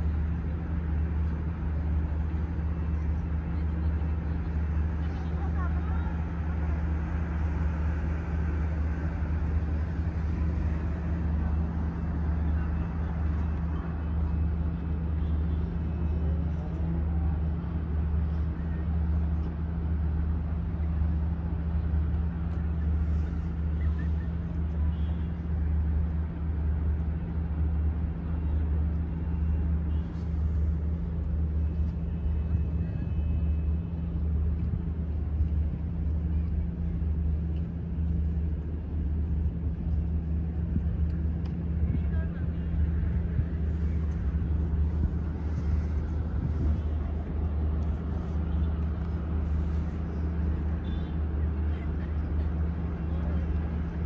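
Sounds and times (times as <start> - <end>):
faint outdoor background noise: 0.0 - 54.0
low mechanical hum: 0.0 - 54.0.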